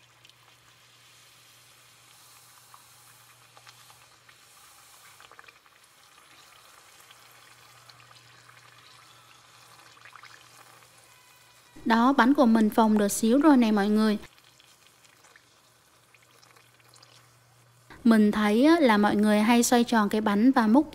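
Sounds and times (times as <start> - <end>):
dough sizzling in hot oil: 0.0 - 20.8.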